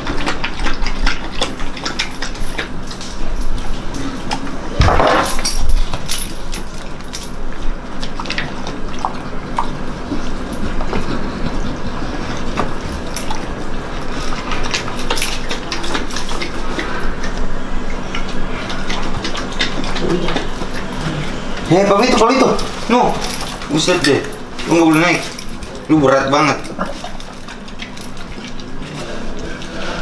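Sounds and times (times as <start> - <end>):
dogs lapping milk: 0.0 - 30.0.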